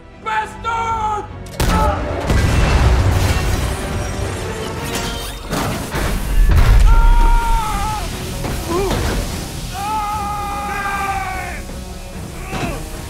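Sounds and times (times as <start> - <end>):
rushing water: 2.6 - 13.0
heavy boom: 6.3 - 7.7.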